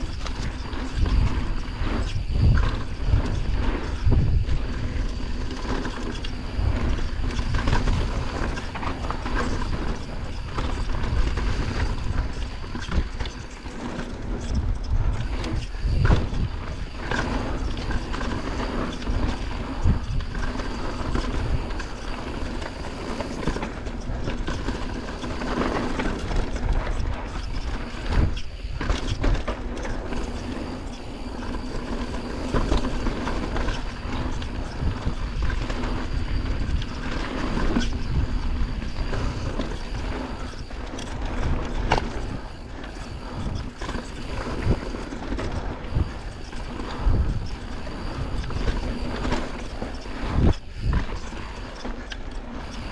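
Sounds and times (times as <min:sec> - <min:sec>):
bike tyres on dirt: 0:00.0 - 0:52.9
wind rumbling on microphone: 0:00.0 - 0:52.9.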